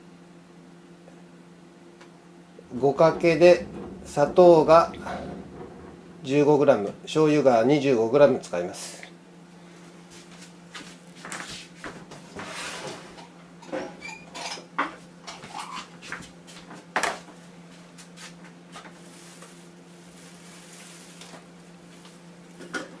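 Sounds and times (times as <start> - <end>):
steady low hum: 0.0 - 13.5.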